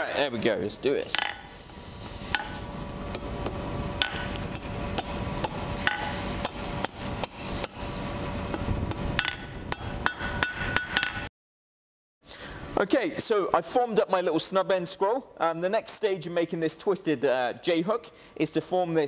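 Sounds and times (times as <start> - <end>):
hammer striking steel on anvil: 0.9 - 1.5, 4.0 - 7.8, 8.5 - 11.3.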